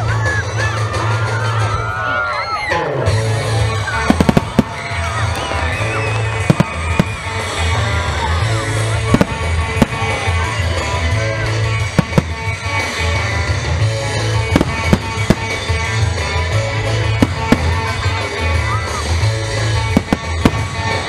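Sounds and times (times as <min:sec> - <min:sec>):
music with pulsing bass: 0:03.0 - 0:21.0
firework shells bursting: 0:04.1 - 0:07.4, 0:12.0 - 0:12.6, 0:14.4 - 0:16.0, 0:17.2 - 0:18.0, 0:19.9 - 0:21.0.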